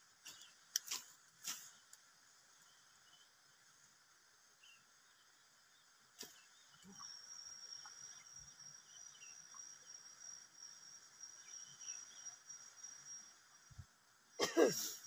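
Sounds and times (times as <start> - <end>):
faint chirps: 0.1 - 15.0
insect trilling: 6.2 - 15.0.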